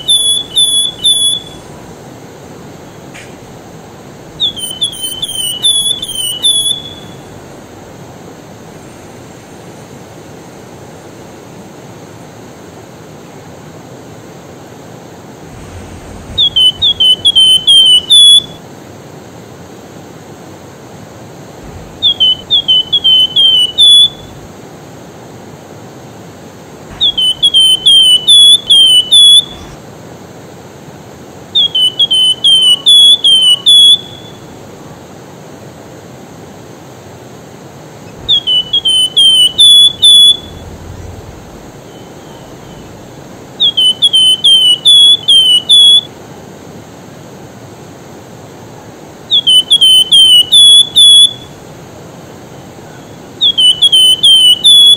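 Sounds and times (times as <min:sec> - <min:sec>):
bird whistling high notes: 0:00.0 - 0:01.9, 0:04.3 - 0:08.0, 0:15.6 - 0:18.6, 0:21.7 - 0:24.5, 0:26.9 - 0:29.8, 0:38.1 - 0:46.1, 0:49.3 - 0:51.6.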